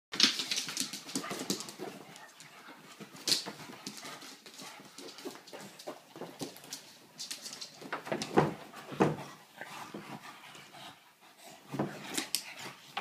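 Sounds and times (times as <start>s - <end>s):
claws scrabbling on laminate floor: 0.2s - 10.3s.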